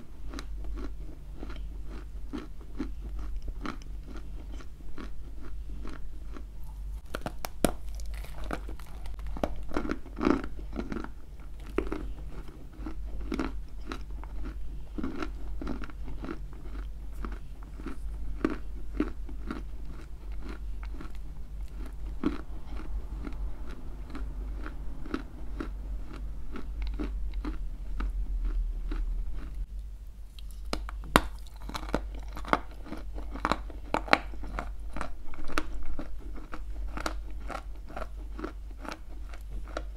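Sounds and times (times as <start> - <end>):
crunching and chewing clay: 0.0 - 29.7, 30.3 - 39.9
steady low hum: 0.0 - 39.9.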